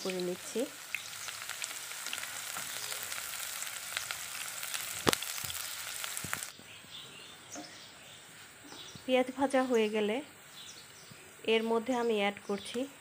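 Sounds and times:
onions sizzling in oil: 0:00.0 - 0:06.5.

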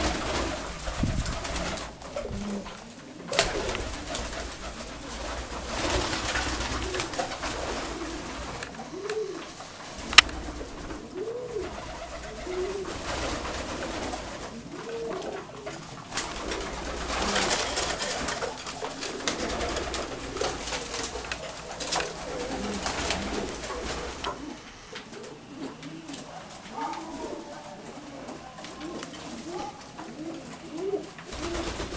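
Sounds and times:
pigeons cooing: 0:00.0 - 0:31.9
rustling noise: 0:00.0 - 0:31.9.

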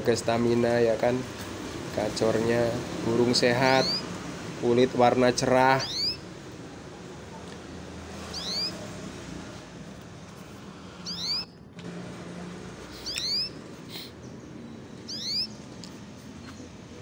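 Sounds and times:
background traffic hum: 0:00.0 - 0:17.0
canary chirping: 0:03.2 - 0:04.2, 0:05.6 - 0:06.4, 0:08.1 - 0:09.2, 0:11.0 - 0:11.7, 0:12.8 - 0:16.7.

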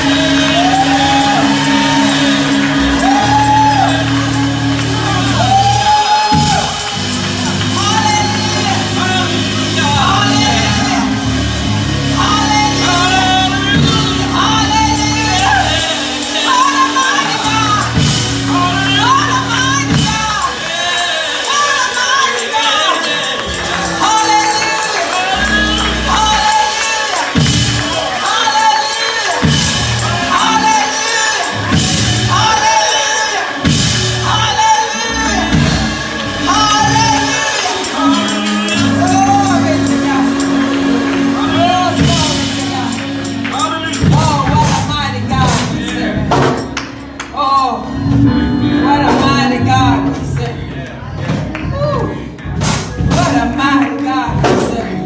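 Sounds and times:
held low accompanying chords: 0:00.0 - 0:28.5, 0:29.3 - 0:55.0
live church band music: 0:00.0 - 0:55.0
woman singing into a microphone: 0:12.2 - 0:15.8.

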